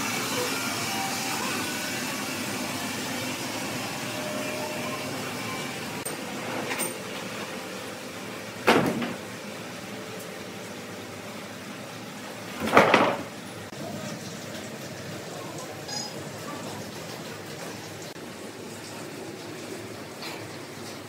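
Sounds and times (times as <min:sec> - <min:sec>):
sawmill machinery hum: 0:00.0 - 0:12.6.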